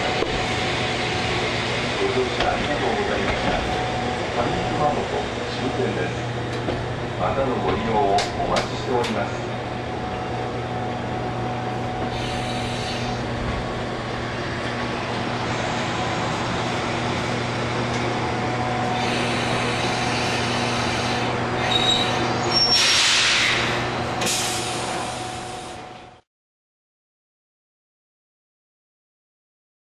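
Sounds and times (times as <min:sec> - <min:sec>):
train equipment humming: 0:00.0 - 0:26.2
air hissing: 0:12.0 - 0:13.3, 0:18.9 - 0:25.8.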